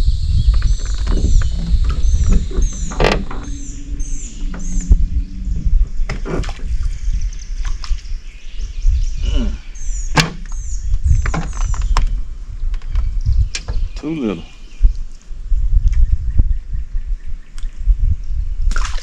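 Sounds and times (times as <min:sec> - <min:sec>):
low rumble: 0:00.0 - 0:14.0
birds chirping: 0:00.0 - 0:17.8
brief falling tone: 0:01.9 - 0:06.1.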